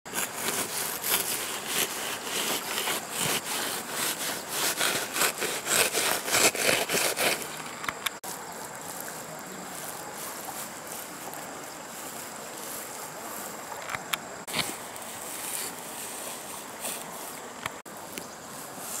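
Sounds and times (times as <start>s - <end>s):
rhythmic scraping in wet sand: 0.1s - 19.0s
steady hiss: 0.1s - 19.0s.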